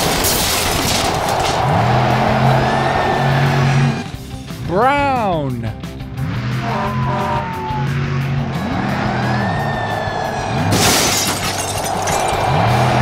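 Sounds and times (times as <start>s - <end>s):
loud crash: 0.0s - 1.8s, 10.6s - 12.4s
truck engine revving: 0.6s - 4.6s, 5.7s - 10.9s, 11.6s - 13.0s.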